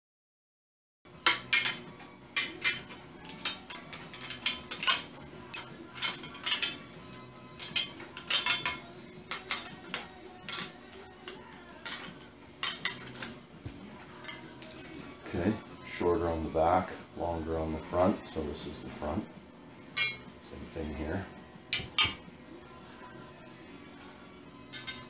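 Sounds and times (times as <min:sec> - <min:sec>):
metal tools clinking: 0:01.2 - 0:13.4, 0:14.2 - 0:15.7, 0:20.0 - 0:21.0, 0:21.7 - 0:22.3, 0:24.7 - 0:25.0.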